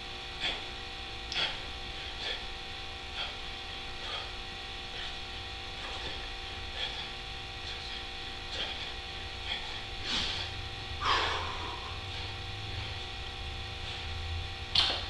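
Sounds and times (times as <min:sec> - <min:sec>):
low electrical hum: 0:00.0 - 0:15.0
man breathing forcefully: 0:00.3 - 0:15.0.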